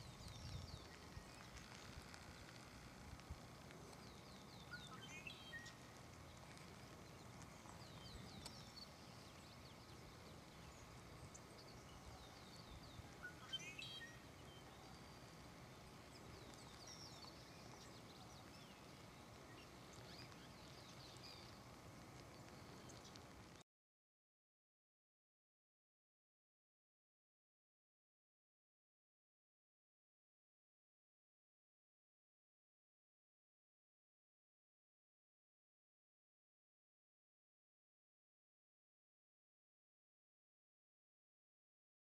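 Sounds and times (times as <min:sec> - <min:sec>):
small birds chirping: 0:00.0 - 0:23.6.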